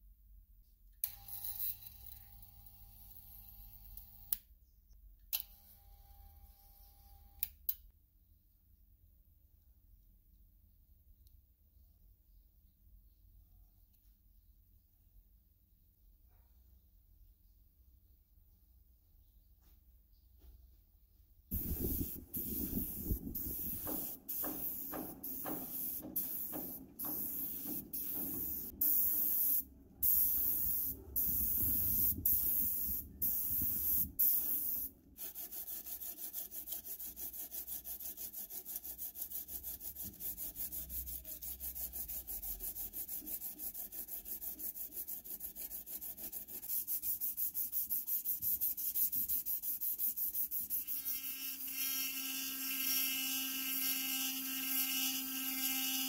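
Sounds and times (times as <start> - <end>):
spray-paint can hissing: 21.5 - 36.6
sandpaper rubbing on sheet metal: 21.5 - 52.0.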